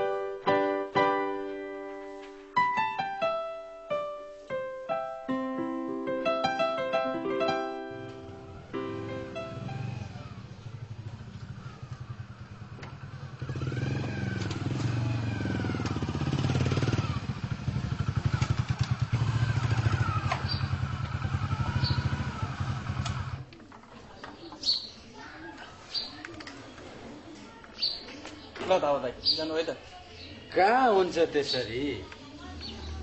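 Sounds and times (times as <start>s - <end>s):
motorcycle engine running: 8.7s - 23.5s.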